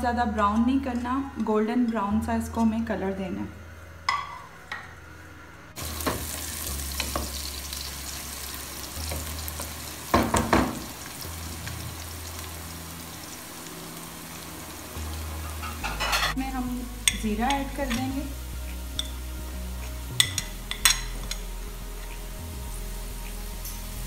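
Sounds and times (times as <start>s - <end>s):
onions sizzling in hot oil: 5.8s - 24.0s.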